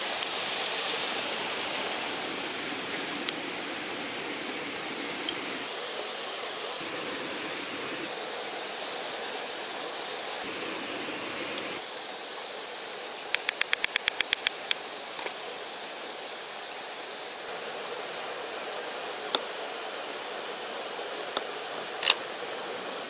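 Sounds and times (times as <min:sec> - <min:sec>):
steady rushing hiss: 0:00.0 - 0:23.0
rapid sharp clicks: 0:13.3 - 0:14.8.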